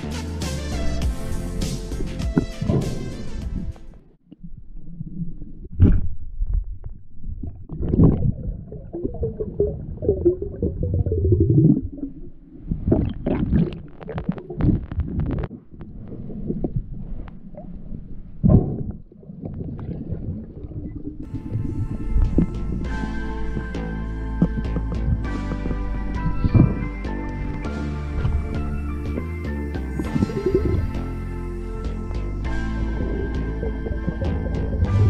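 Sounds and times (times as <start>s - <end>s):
underwater rumbling and gurgling: 2.3s - 35.0s
sharp underwater clicks: 12.9s - 17.4s.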